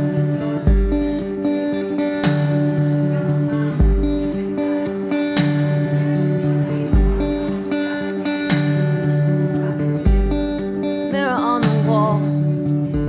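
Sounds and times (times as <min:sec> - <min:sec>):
electric guitar playing: 0:00.0 - 0:13.0.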